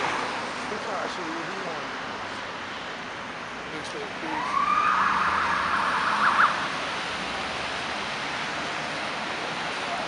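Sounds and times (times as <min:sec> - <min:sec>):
hiss of passing traffic: 0:00.0 - 0:10.0
siren yelps: 0:04.2 - 0:06.7
police car siren wailing: 0:04.2 - 0:06.8.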